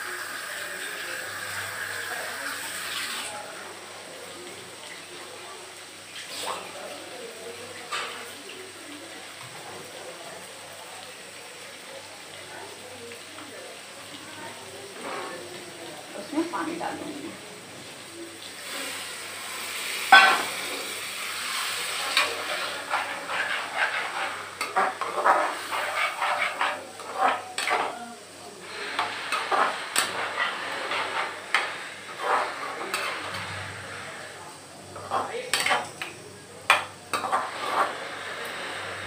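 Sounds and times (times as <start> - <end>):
food sizzling in oil: 0.0 - 39.0
spoon scraping metal pan: 20.0 - 28.0, 28.6 - 34.4, 35.0 - 36.1, 36.7 - 38.8.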